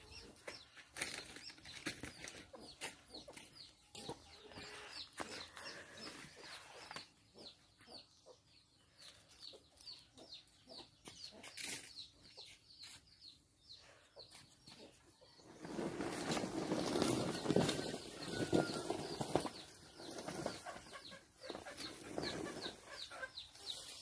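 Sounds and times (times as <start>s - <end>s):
chickens clucking: 0.0s - 13.0s, 13.7s - 24.0s
potted plant scraping on dirt: 15.4s - 23.1s.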